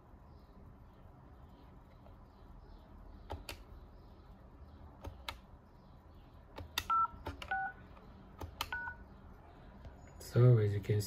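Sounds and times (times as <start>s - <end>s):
two-tone keypad beeps: 6.9s - 7.8s, 8.7s - 9.0s.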